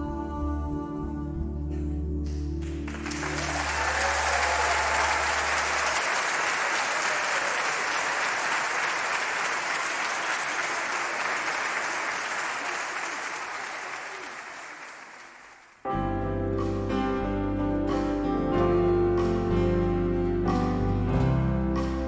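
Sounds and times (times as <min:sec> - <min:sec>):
audience applauding: 0:02.6 - 0:15.8.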